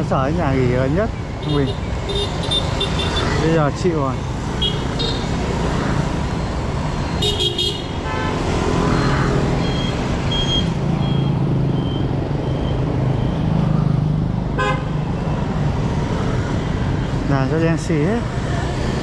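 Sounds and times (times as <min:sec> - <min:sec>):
motorbike and car engines: 0:00.0 - 0:19.0.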